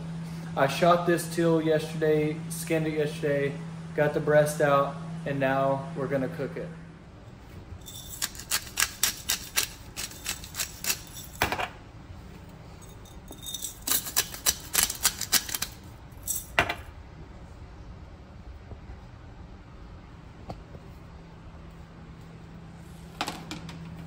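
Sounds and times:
spice grinder clicking: 0:08.1 - 0:11.3, 0:13.8 - 0:15.8.

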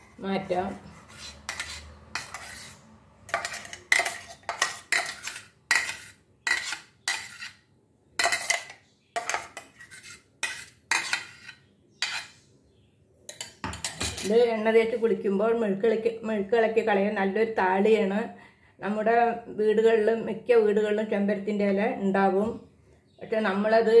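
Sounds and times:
spoon scraping metal jar: 0:00.0 - 0:07.6, 0:08.2 - 0:12.4.

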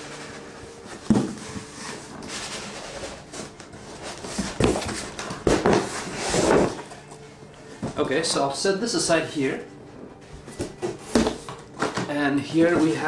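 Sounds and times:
cardboard scraping: 0:00.0 - 0:07.0, 0:10.2 - 0:13.0
boxes thumping together: 0:00.9 - 0:01.8, 0:03.2 - 0:06.9, 0:10.4 - 0:12.2.

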